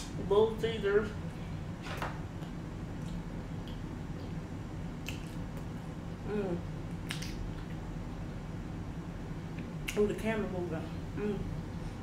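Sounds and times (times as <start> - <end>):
steady low hum: 0.0 - 12.0
wet chewing and mouth clicks: 5.0 - 5.7, 6.9 - 7.8
person humming: 6.2 - 6.6, 11.2 - 11.5.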